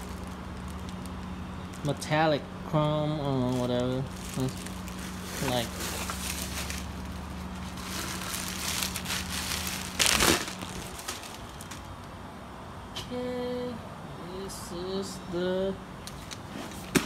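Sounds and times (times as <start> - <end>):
plastic bag crinkling: 0.0 - 2.2, 3.2 - 11.9.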